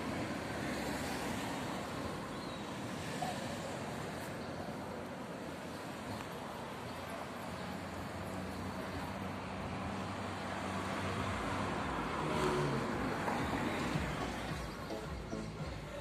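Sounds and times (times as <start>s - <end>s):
traffic rumble: 0.0s - 16.0s
motor vehicle passing: 7.7s - 16.0s.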